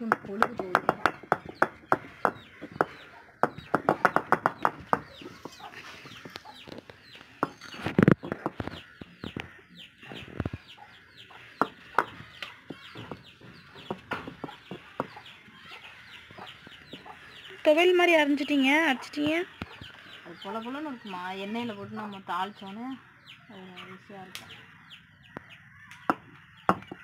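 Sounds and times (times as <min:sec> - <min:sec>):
chickens clucking: 0:00.0 - 0:27.0
chicks peeping: 0:00.0 - 0:27.0.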